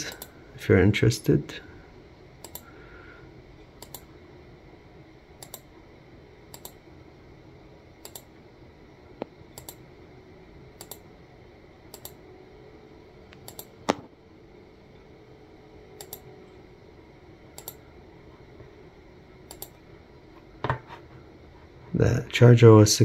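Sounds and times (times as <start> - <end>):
computer mouse clicks: 2.4 - 2.7, 3.8 - 4.1, 5.4 - 5.7, 6.5 - 6.8, 8.0 - 8.3, 9.6 - 9.8, 10.8 - 11.0, 11.9 - 12.2, 13.3 - 14.0, 16.0 - 16.3, 17.6 - 17.8, 19.5 - 19.8.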